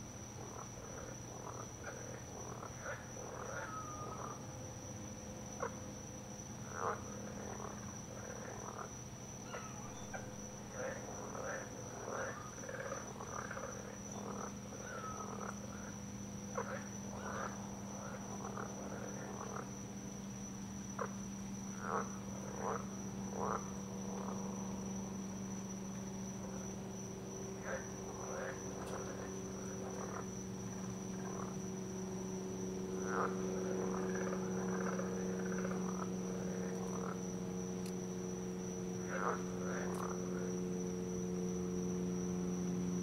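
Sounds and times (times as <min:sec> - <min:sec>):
frogs croaking: 0:00.0 - 0:43.0
high-pitched insect drone: 0:00.0 - 0:43.0
low steady hum: 0:00.0 - 0:43.0.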